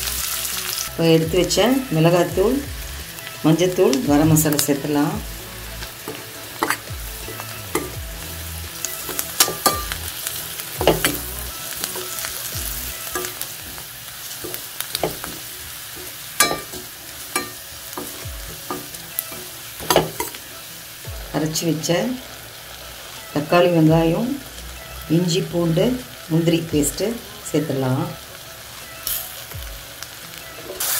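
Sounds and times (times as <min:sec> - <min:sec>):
onions sizzling in a pan: 0:00.0 - 0:30.9
spatula scraping a pan: 0:05.9 - 0:08.0, 0:08.8 - 0:20.4.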